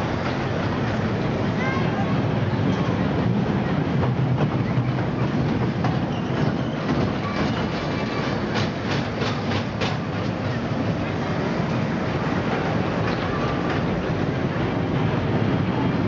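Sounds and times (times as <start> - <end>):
roller coaster cars rumbling on track: 0.0 - 16.0
roller coaster sharp clacks: 0.0 - 16.0.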